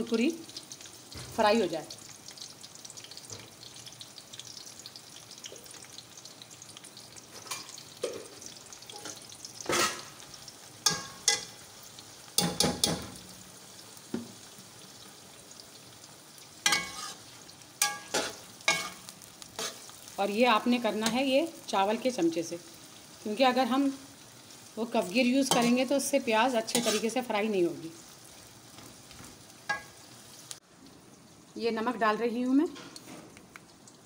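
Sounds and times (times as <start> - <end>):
onions sizzling in oil: 0.0 - 34.0
ladle scraping metal pot: 26.8 - 27.2.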